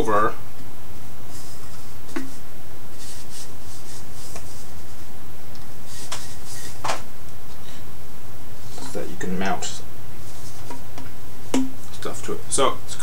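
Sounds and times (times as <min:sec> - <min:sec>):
steady low hum: 0:00.0 - 0:13.0
rubber strap scuffing and rubbing: 0:01.3 - 0:02.4, 0:03.0 - 0:05.1, 0:05.9 - 0:07.0, 0:10.2 - 0:10.9.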